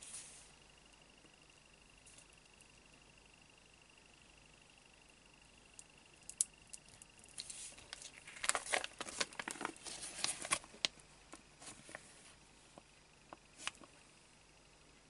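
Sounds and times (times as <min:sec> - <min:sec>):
plastic sheet crinkling: 0:07.3 - 0:10.9.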